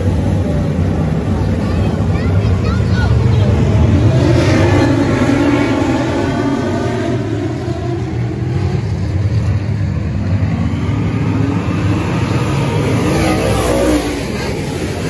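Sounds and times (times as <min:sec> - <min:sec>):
race car engines rumbling: 0:00.0 - 0:15.0
race car passing: 0:00.0 - 0:15.0.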